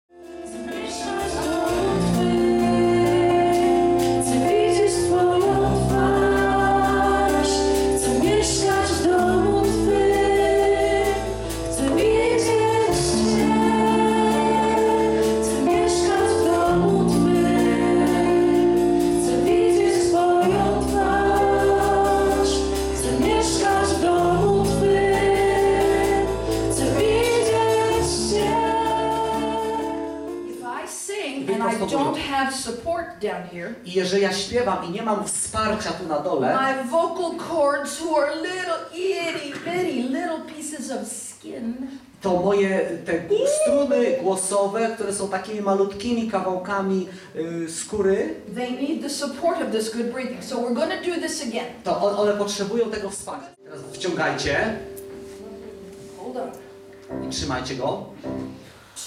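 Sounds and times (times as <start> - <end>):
sustained chords: 0.2 - 30.6, 53.6 - 58.6
person singing worship song: 0.4 - 30.6
deep bass line: 0.8 - 30.4.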